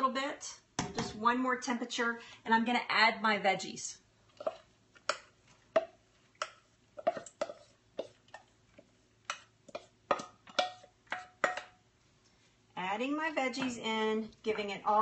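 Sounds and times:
metal bowl knocking and scraping: 9.7 - 11.8.

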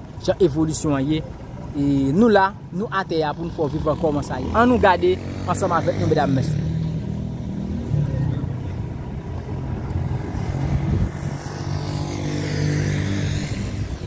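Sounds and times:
vehicle passing: 2.8 - 14.0.

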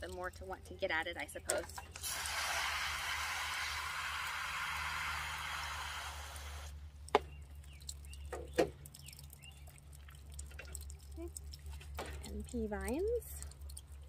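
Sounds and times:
water spraying from hose nozzle: 1.9 - 6.8.

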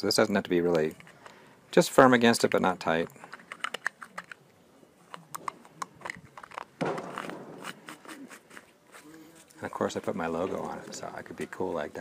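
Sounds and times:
hard plastic clicks and rubbing: 2.5 - 8.7.

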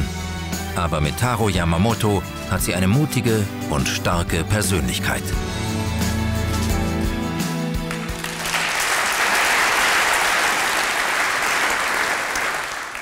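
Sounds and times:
background music: 0.0 - 11.0
audience clapping: 7.7 - 13.0.

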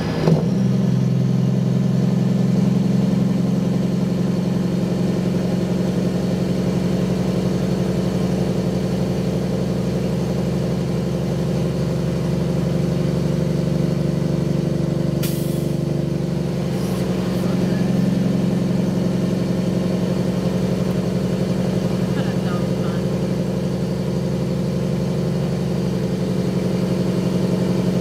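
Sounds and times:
diesel truck engine running: 0.0 - 28.0.

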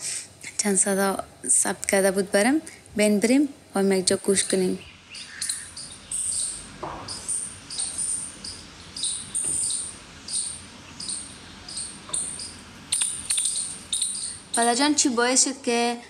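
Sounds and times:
outdoor background hiss: 0.0 - 16.0
birds chirping: 3.8 - 15.2.

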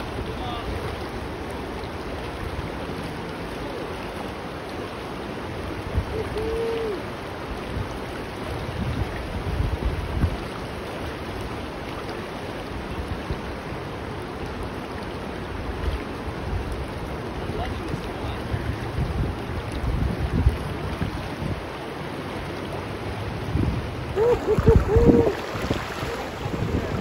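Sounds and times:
river water rushing over rocks: 0.0 - 27.0
low rumbles on microphone: 23.4 - 27.0.

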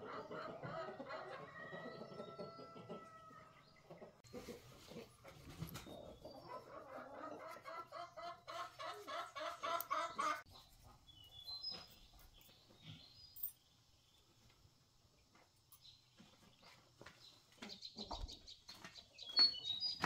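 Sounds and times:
chicken clucking: 0.0 - 11.0, 17.5 - 20.0.

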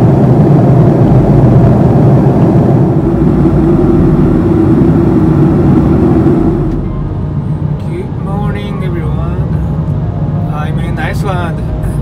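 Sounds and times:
jet cabin engine and airflow rush: 0.0 - 12.0.

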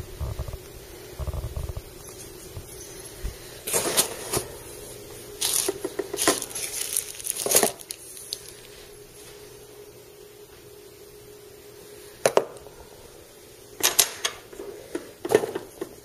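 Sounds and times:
bubble wrap crinkling: 5.3 - 9.4.

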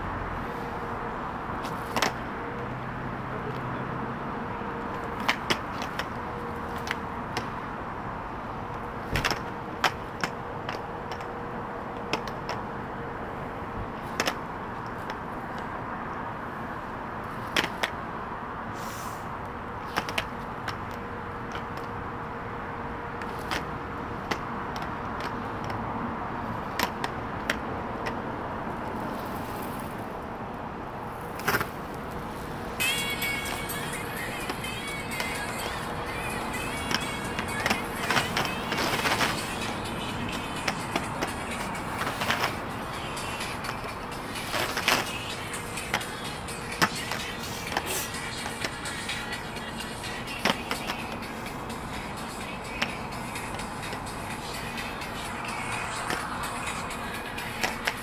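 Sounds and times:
roller skates rolling on concrete: 0.3 - 58.0
sharp clacks of skates: 1.6 - 2.2, 4.9 - 7.5, 14.0 - 15.7, 17.3 - 18.0, 19.8 - 22.0, 26.5 - 28.2, 31.2 - 58.0.

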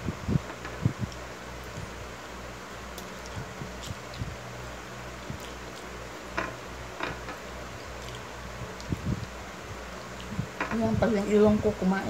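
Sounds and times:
low hum: 0.0 - 12.0
person biting and smacking food: 2.9 - 4.4, 5.2 - 6.0.

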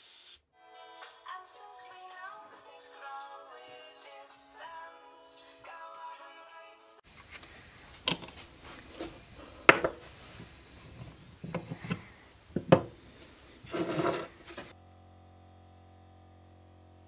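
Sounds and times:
metal parts clicking and knocking: 7.2 - 13.0
rubbing scrape: 8.4 - 14.8.

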